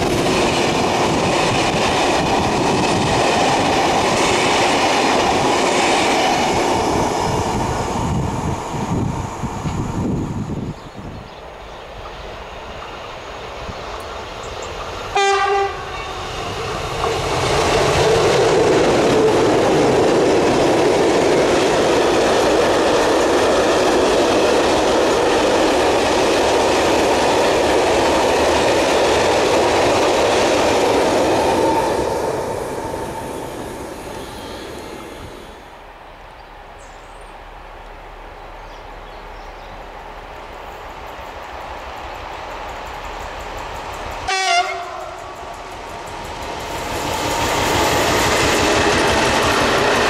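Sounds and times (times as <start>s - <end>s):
train wheels on rails: 0.0s - 35.9s, 39.5s - 50.0s
railway horn blast: 15.1s - 16.7s, 44.3s - 45.6s.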